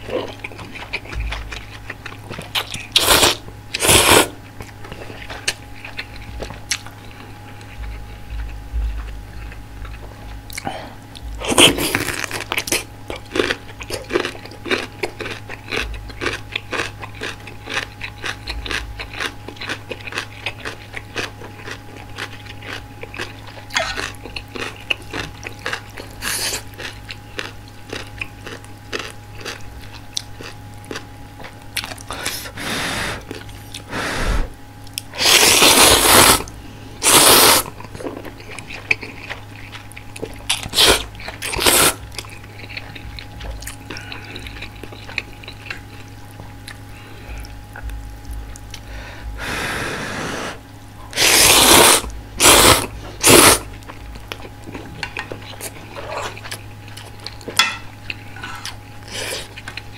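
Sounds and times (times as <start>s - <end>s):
crunchy chewing: 0.0s - 49.0s, 50.9s - 59.9s
slurping noodles: 2.9s - 4.4s, 35.2s - 37.7s, 40.6s - 42.0s, 49.4s - 53.7s.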